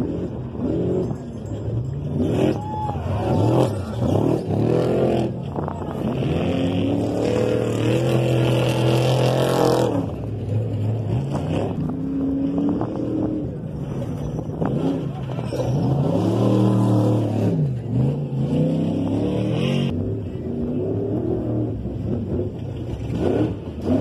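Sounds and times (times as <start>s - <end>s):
truck engines revving hard: 0.0s - 24.0s.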